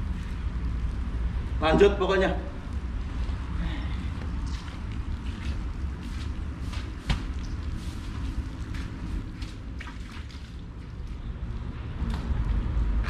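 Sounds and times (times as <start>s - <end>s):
steady low rumble: 0.0s - 9.8s
water lapping and splashing: 2.8s - 11.7s.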